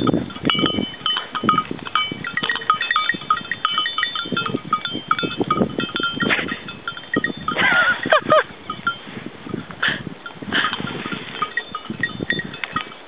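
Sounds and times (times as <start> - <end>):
knocks and rustling of animals: 0.0 - 8.0
goat bells ringing: 0.0 - 13.0.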